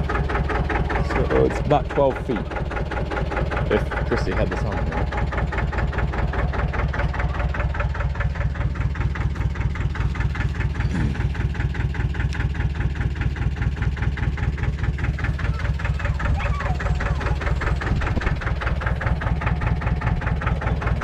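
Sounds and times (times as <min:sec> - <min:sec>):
engine idling: 0:00.0 - 0:21.0.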